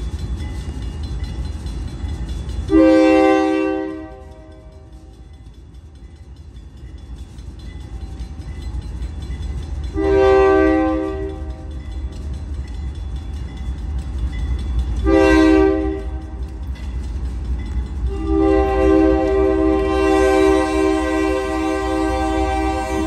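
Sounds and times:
locomotive engine and train rumble: 0:00.0 - 0:23.0
locomotive air horn blasts: 0:02.7 - 0:04.7, 0:10.0 - 0:11.5, 0:15.0 - 0:16.2, 0:18.1 - 0:23.0.

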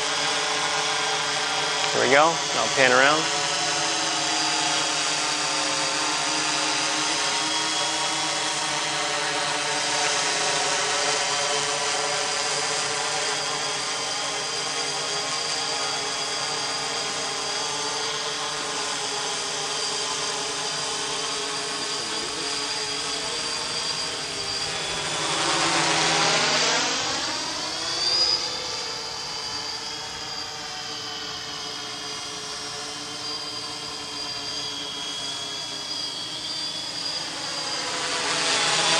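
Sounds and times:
drone motors whining: 0:00.0 - 0:38.9.

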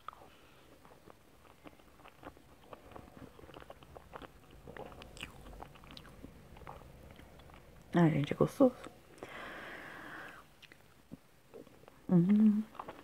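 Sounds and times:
close chewing with mouth clicks: 0:00.0 - 0:07.9, 0:10.2 - 0:13.0.

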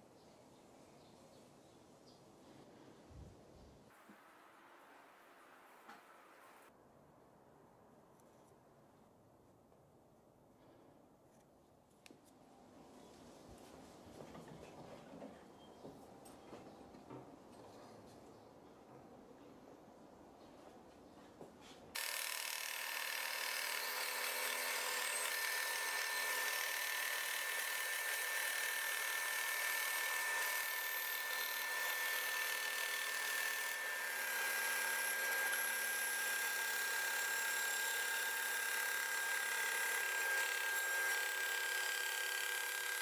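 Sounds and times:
bandsaw cutting wood: 0:22.0 - 0:43.0.

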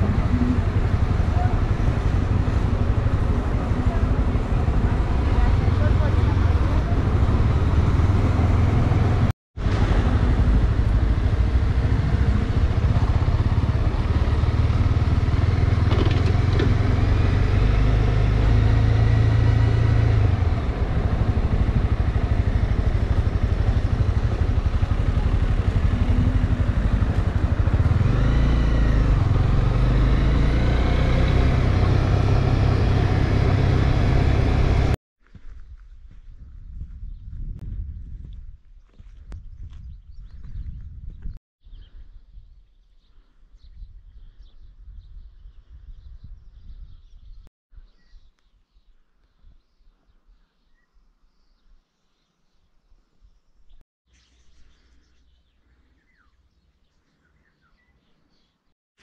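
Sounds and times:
motorcycle engine running: 0:00.0 - 0:35.0.

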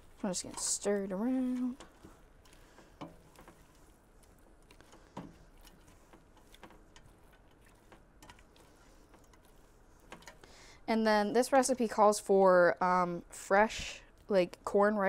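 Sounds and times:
spatula scraping a metal pot: 0:00.0 - 0:10.4.

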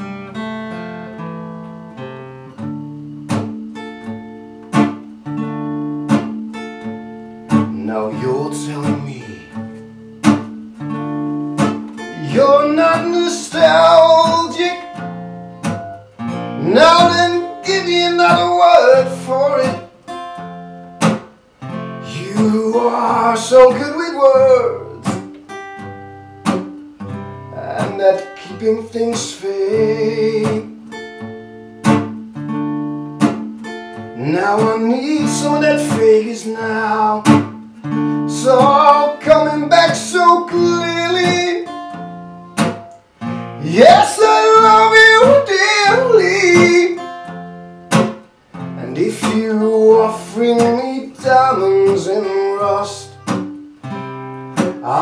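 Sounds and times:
acoustic guitar strummed and picked: 0:00.0 - 0:55.0
man singing: 0:07.5 - 0:09.8, 0:12.0 - 0:15.2, 0:16.4 - 0:19.9, 0:22.0 - 0:25.4, 0:27.4 - 0:30.9, 0:34.1 - 0:42.0, 0:43.6 - 0:47.3, 0:48.7 - 0:53.5, 0:54.6 - 0:55.0.

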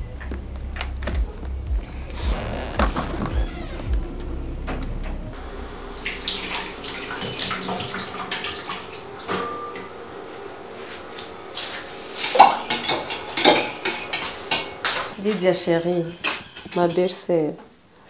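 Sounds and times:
water running in sink: 0:05.4 - 0:17.2
dishes and pots clattering: 0:12.3 - 0:17.2.

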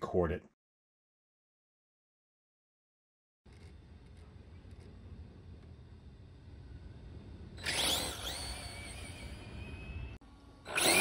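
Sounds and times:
electric motor whining: 0:07.5 - 0:11.0.

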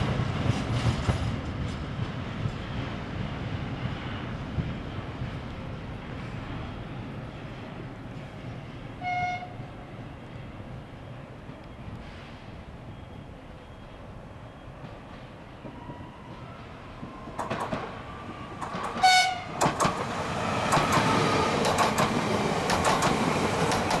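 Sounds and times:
train running noise: 0:00.0 - 0:24.0
train horn blast: 0:09.0 - 0:09.9, 0:19.0 - 0:19.6
wheel clicks over rail joints: 0:17.4 - 0:17.9, 0:18.6 - 0:19.0, 0:19.6 - 0:20.1, 0:20.7 - 0:24.0.

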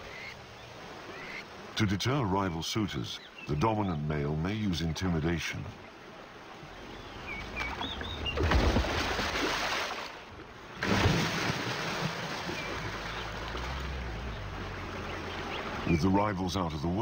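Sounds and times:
water splashing and churning: 0:04.6 - 0:17.0.

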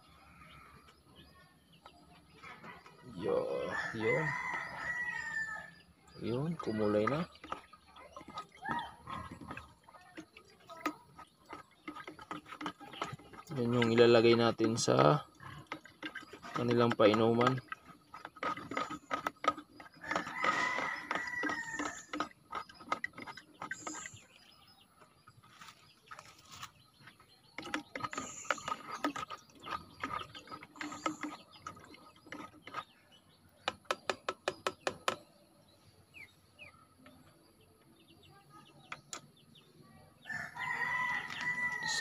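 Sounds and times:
chickens calling: 0:02.6 - 0:33.9, 0:40.2 - 0:42.0
plastic jug knocking and clattering: 0:06.2 - 0:24.2, 0:25.1 - 0:32.9, 0:33.6 - 0:35.3.

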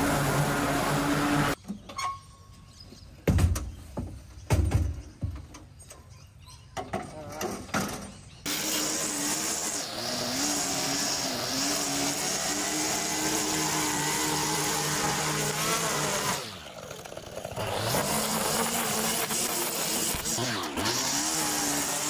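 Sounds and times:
line trimmer cutting grass: 0:00.0 - 0:01.6, 0:08.5 - 0:22.0.

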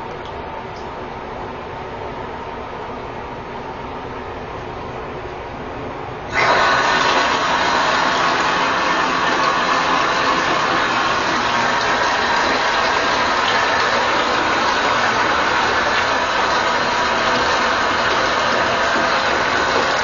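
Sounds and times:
water rushing: 0:06.3 - 0:20.0.

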